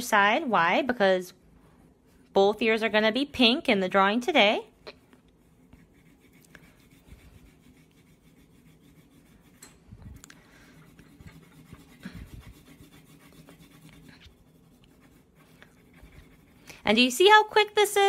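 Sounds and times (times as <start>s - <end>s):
pencil rubbing on paper: 5.2s - 9.6s, 10.5s - 17.6s.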